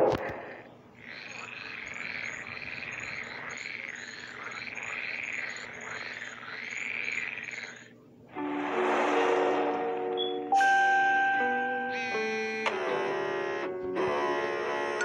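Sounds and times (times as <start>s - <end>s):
frogs croaking: 0.0s - 8.2s, 11.9s - 14.9s
high chirps: 0.6s - 12.6s.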